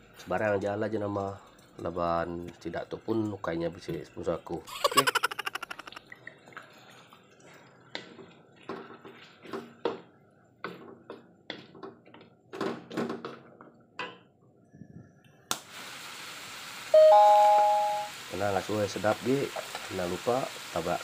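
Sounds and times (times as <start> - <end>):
steady sizzle: 15.6 - 21.0.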